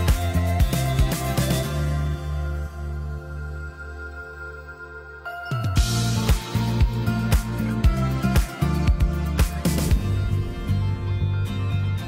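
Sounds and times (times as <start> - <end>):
beat with heavy kick drums: 0.0 - 1.7, 5.8 - 12.0
soft electronic chords: 0.0 - 12.0.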